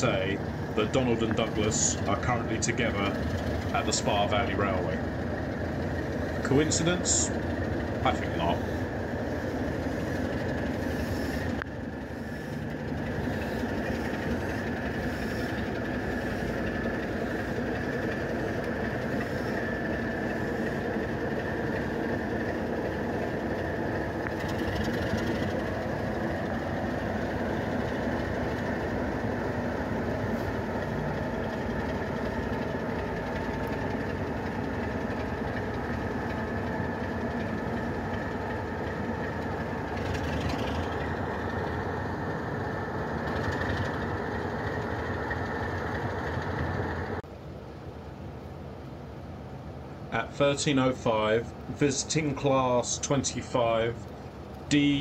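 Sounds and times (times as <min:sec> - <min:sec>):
train wheels rolling over rails: 0:00.0 - 0:47.2
diesel locomotive engine running: 0:00.0 - 0:55.0.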